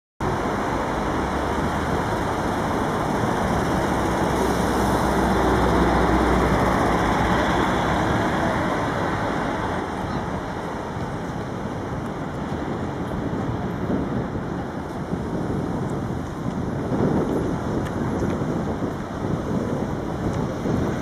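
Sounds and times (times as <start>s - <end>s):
city street traffic: 0.2s - 21.0s.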